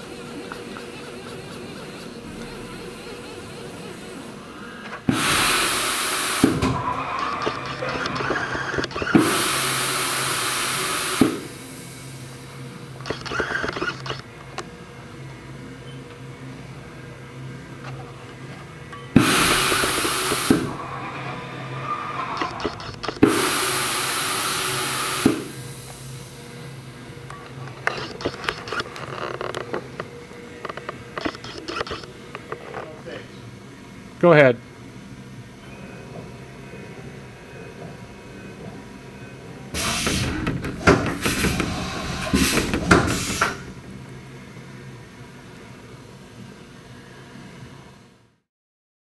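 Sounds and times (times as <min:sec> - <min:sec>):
steady machine hum: 0:00.0 - 0:47.2
loud air hisses: 0:05.1 - 0:12.4, 0:19.2 - 0:26.5, 0:39.8 - 0:43.8.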